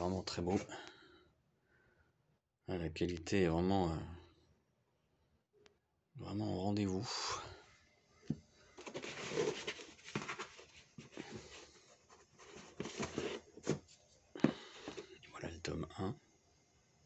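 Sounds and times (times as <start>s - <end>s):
books and cardboard rustling: 0.0s - 0.7s, 8.3s - 15.2s.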